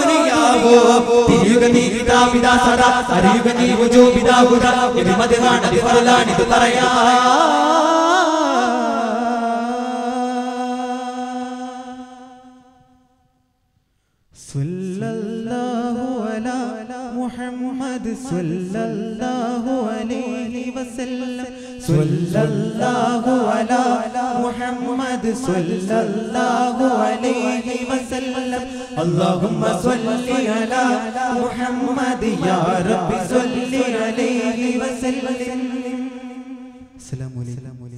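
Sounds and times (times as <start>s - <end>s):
boys chanting in unison: 0.0s - 9.2s, 21.9s - 36.1s.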